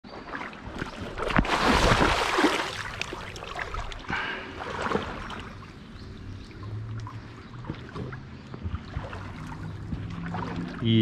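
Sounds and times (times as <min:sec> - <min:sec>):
water splashing and sloshing: 0:00.0 - 0:11.0
knocks in water: 0:00.7 - 0:03.2.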